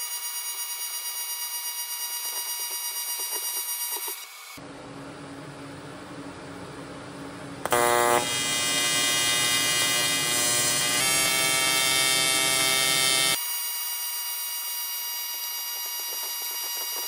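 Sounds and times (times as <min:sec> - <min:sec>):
welding arc buzzing: 0:07.6 - 0:17.0.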